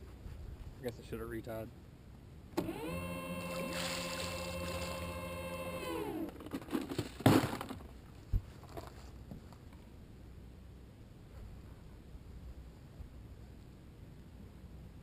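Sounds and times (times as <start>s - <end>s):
electric boat motor whining: 2.6s - 6.4s.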